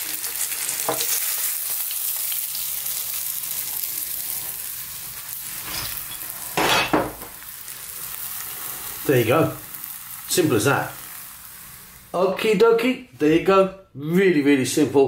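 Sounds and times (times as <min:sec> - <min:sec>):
hot oil sizzling in a frying pan: 0:00.0 - 0:12.4.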